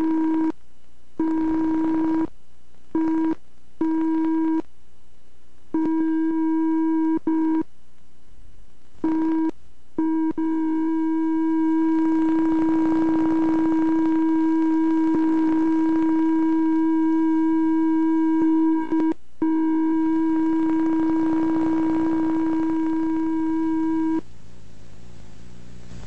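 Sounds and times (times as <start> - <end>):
loud electronic tone: 9.1 - 24.2.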